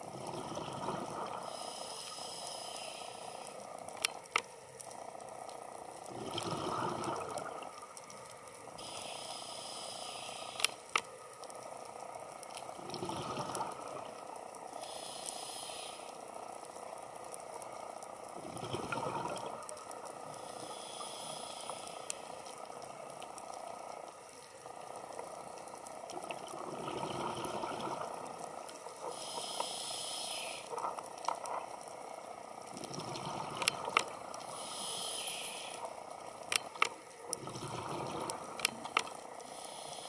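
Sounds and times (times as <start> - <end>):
underwater bubbles gurgling: 0.0 - 40.0
regulator hiss of inhaled air: 1.4 - 3.6, 8.8 - 11.0, 14.8 - 16.3, 20.3 - 22.4, 29.0 - 30.8, 34.4 - 36.1, 39.4 - 40.0.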